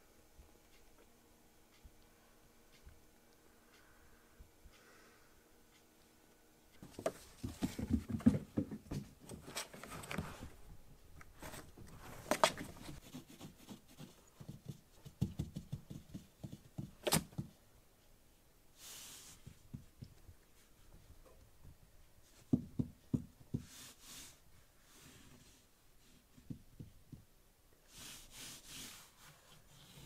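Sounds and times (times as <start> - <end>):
kitten paws scrabbling on cardboard: 6.8 - 10.3, 12.2 - 17.5.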